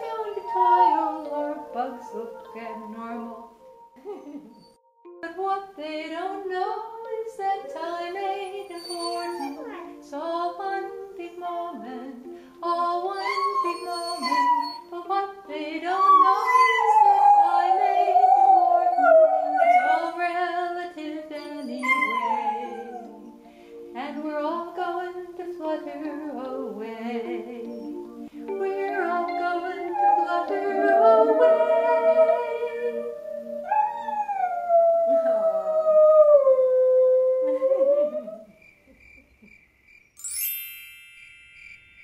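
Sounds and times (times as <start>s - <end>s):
woman singing: 0.0s - 3.6s, 5.2s - 33.4s
dog howling: 0.4s - 1.4s, 8.8s - 9.8s, 15.9s - 20.2s, 21.4s - 23.3s, 29.8s - 38.5s.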